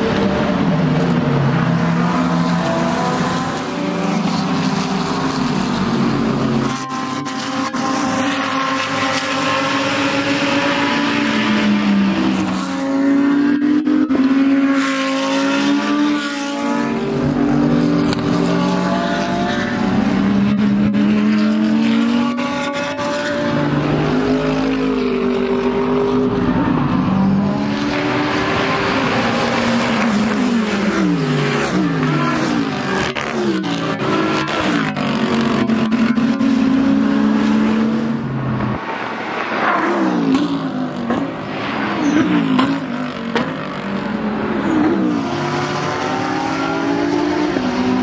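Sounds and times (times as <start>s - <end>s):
race car engines revving: 0.0s - 48.0s.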